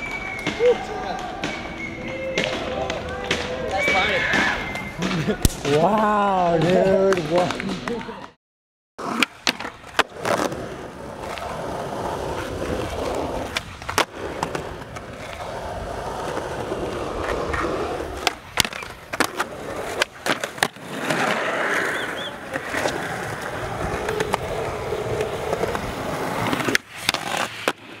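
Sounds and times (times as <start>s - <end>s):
skateboard wheels rolling: 0.0s - 8.0s, 9.0s - 28.0s
skateboard wooden clacks: 12.4s - 28.0s.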